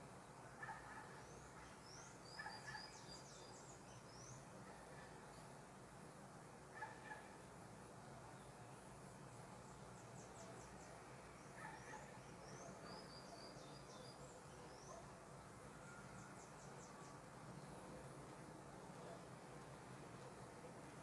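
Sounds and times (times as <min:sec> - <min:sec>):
faint birds chirping: 0:00.0 - 0:21.0.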